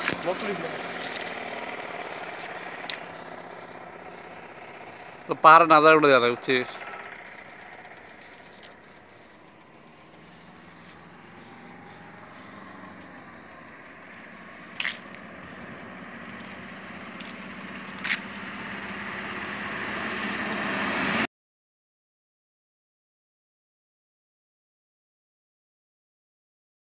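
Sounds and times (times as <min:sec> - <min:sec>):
car approaching on road: 0:00.0 - 0:21.3.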